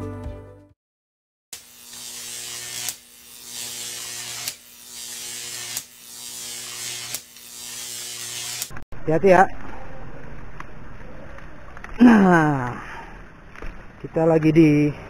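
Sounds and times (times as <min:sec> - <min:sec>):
music: 0:00.0 - 0:00.8
electrical buzz with hum: 0:01.6 - 0:08.8.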